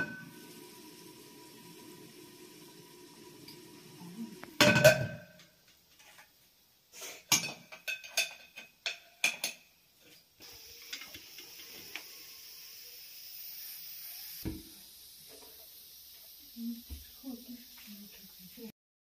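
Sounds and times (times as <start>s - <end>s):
gas burner hissing: 0.0s - 5.0s, 10.4s - 18.7s
metal pot and lid clanking: 4.6s - 5.5s, 7.3s - 9.7s.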